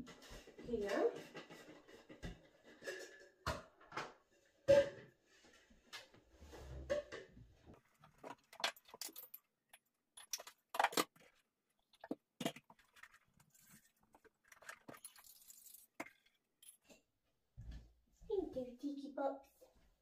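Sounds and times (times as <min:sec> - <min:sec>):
cups and kitchen items clinking: 0:00.0 - 0:05.6.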